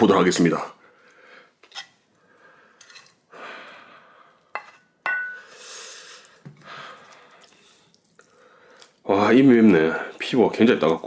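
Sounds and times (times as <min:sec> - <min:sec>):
spoon clinking against bowl: 0:04.6 - 0:05.5
heavy breathing through mouth: 0:05.4 - 0:09.0.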